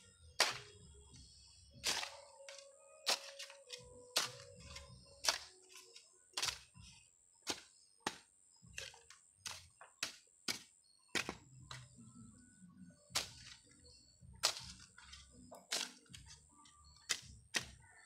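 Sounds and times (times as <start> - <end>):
shovel striking stony soil: 0.4 - 0.8, 1.8 - 6.8, 7.4 - 12.0, 13.1 - 13.6, 14.4 - 16.4, 17.0 - 18.0.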